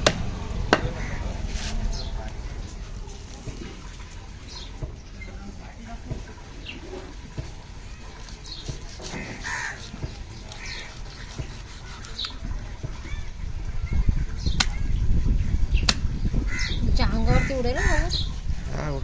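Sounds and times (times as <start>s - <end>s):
crows cawing: 1.0s - 1.3s, 9.0s - 11.0s, 16.5s - 18.1s.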